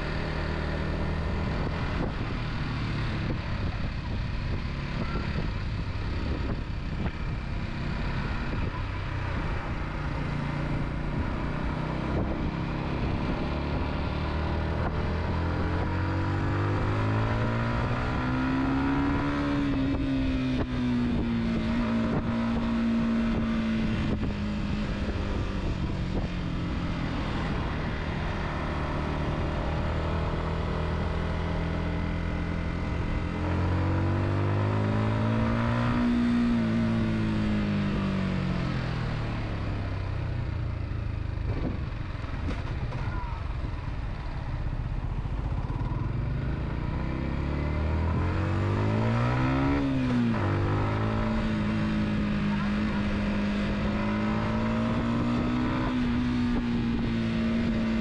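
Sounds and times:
road noise: 0:00.0 - 0:58.0
car engine revving: 0:46.8 - 0:58.0.

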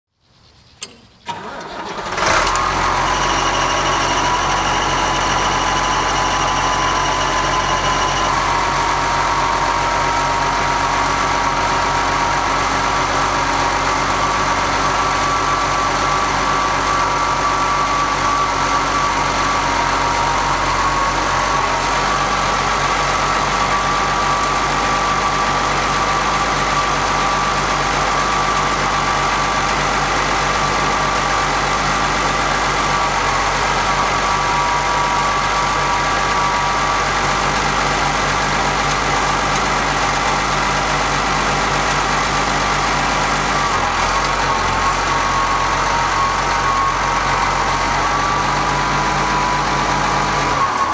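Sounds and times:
diesel tractor engine running: 0:00.8 - 0:50.9
thin high tone: 0:03.0 - 0:10.7.

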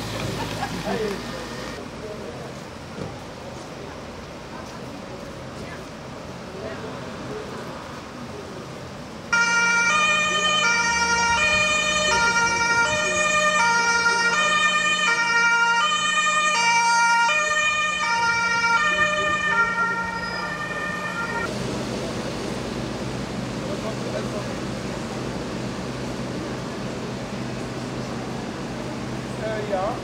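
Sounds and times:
two-tone emergency siren: 0:09.3 - 0:21.5.

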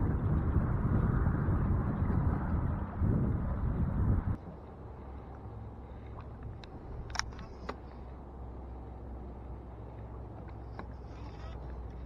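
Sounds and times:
steady low hum: 0:00.0 - 0:12.0
light metallic clicks: 0:06.2 - 0:08.0.

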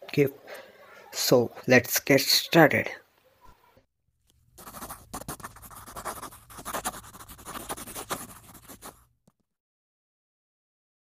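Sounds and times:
pencil scratching on paper: 0:04.6 - 0:09.1.

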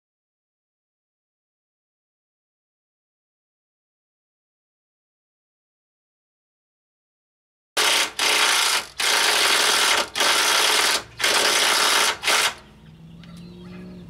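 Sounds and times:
power tool running: 0:07.8 - 0:12.6.

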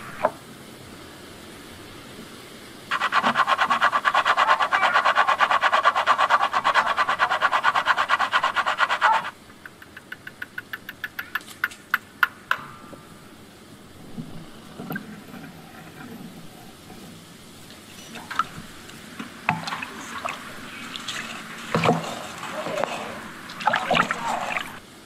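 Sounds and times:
spice grating on metal grater: 0:02.9 - 0:09.4.

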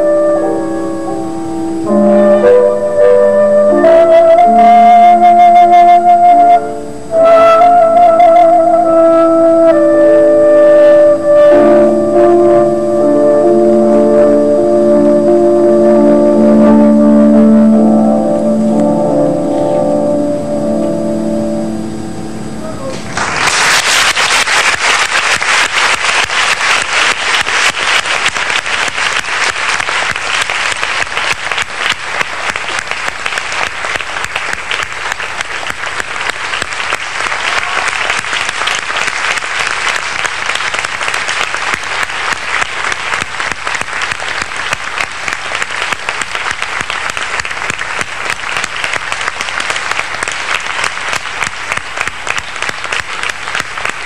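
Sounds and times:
large audience applauding: 0:22.9 - 0:54.0.

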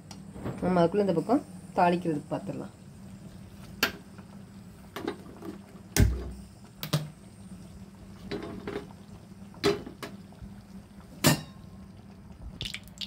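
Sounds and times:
oil clicking and popping in pan: 0:12.6 - 0:13.0.

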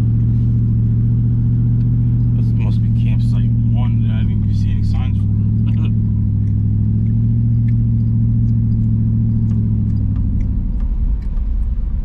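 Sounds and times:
car engine hum: 0:00.0 - 0:12.0
light ticks: 0:05.5 - 0:12.0.

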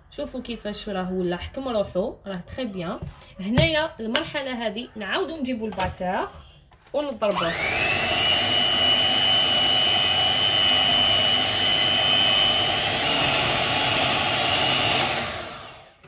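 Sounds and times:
electric hand mixer whining: 0:07.3 - 0:16.0.

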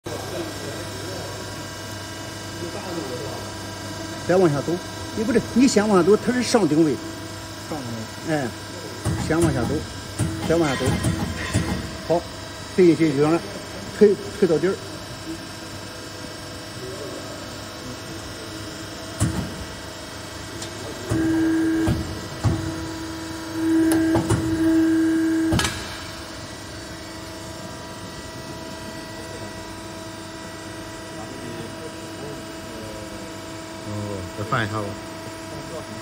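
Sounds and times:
hydraulic punching machine humming: 0:00.1 - 0:36.0
sharp metallic knocks: 0:09.1 - 0:11.9.

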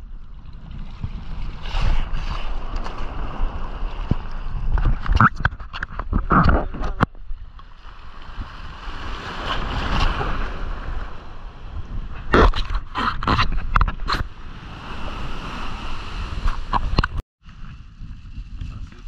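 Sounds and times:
wind rumbling on microphone: 0:00.0 - 0:19.0
water washing at shore: 0:07.6 - 0:17.0.

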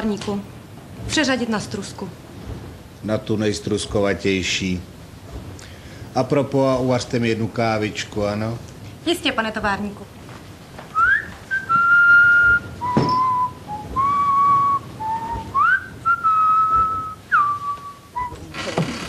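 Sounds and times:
person whistling a slow tune: 0:11.0 - 0:18.5.

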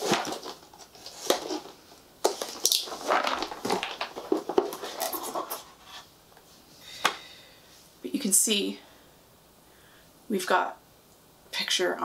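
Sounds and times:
cardboard box crinkling and scraping: 0:00.0 - 0:06.1.

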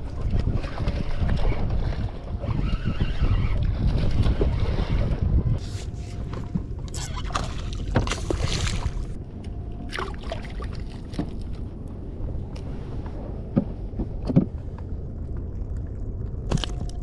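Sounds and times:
water sloshing against boat: 0:00.0 - 0:17.0
wind rumble on microphone: 0:00.0 - 0:17.0
fish splashing and thrashing: 0:05.6 - 0:09.2, 0:15.8 - 0:17.0.

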